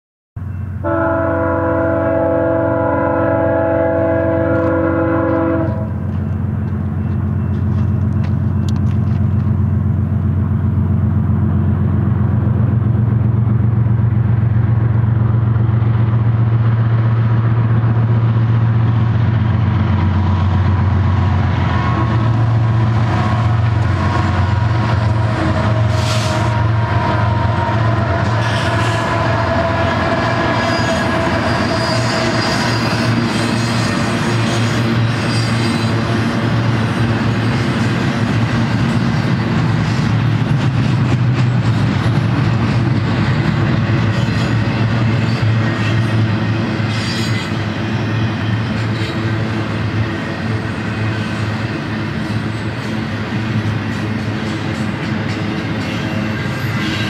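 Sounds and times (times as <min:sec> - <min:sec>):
diesel engines droning: 0:00.4 - 0:57.0
locomotive air horn: 0:00.8 - 0:06.0, 0:21.6 - 0:33.0
train wheels clattering on rails: 0:04.5 - 0:57.0.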